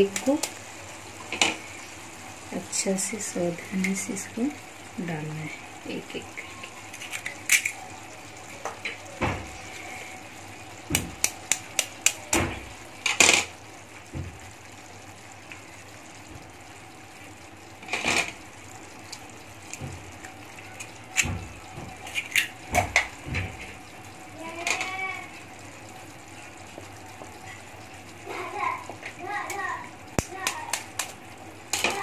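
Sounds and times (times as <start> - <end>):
gravy simmering hiss: 0.0 - 32.0
egg shells cracking: 6.8 - 7.9, 10.9 - 12.4, 22.0 - 23.8, 29.4 - 32.0.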